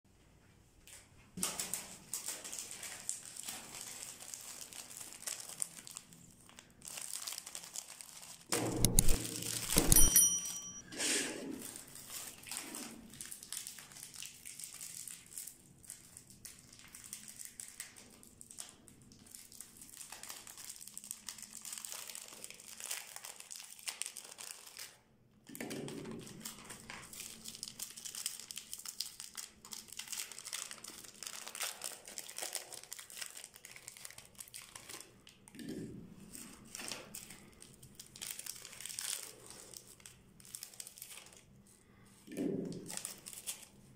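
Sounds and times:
plastic wrappers crinkling: 1.4s - 10.0s, 11.6s - 25.0s, 25.8s - 35.6s, 36.2s - 43.9s
knocks and handling thumps: 8.5s - 10.8s.

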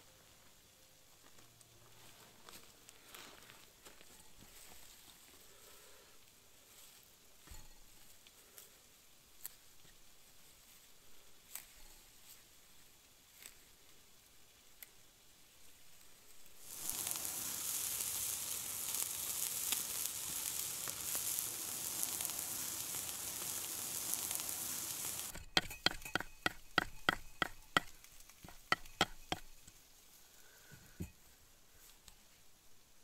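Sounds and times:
skewers sizzling over embers: 0.4s - 30.8s
knife chopping on wooden board: 25.4s - 29.5s.

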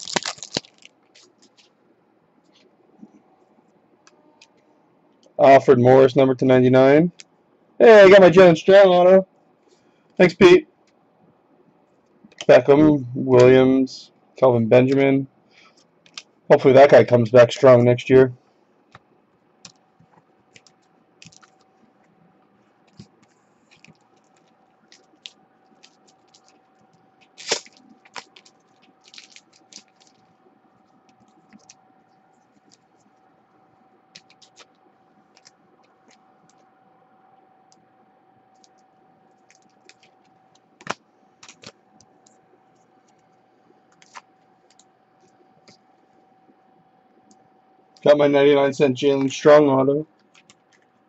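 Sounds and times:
faint steady hum: 0.0s - 51.0s.

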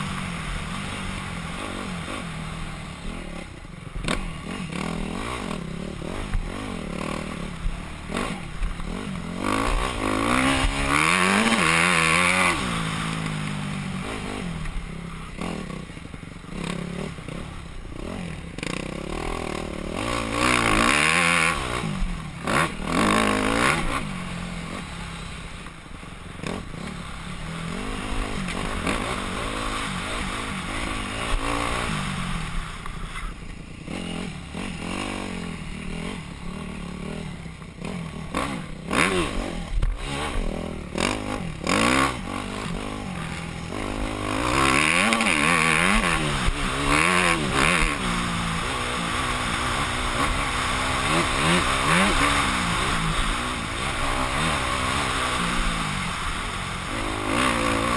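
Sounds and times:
dirt bike engine revving: 0.0s - 57.9s.

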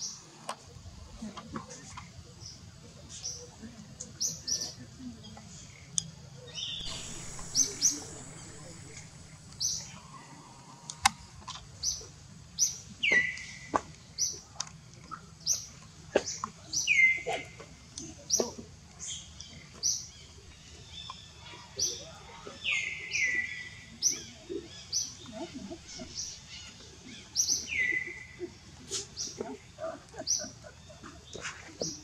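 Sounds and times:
bird chirping: 6.5s - 13.6s.

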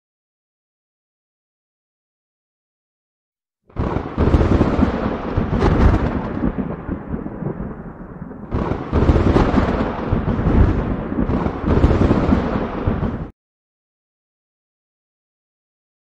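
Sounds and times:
rumbling thunderclap: 3.7s - 13.3s.

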